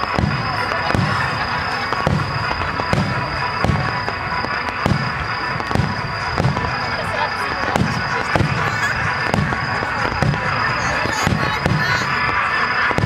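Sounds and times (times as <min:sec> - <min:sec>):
continuous dense din: 0:00.0 - 0:13.0.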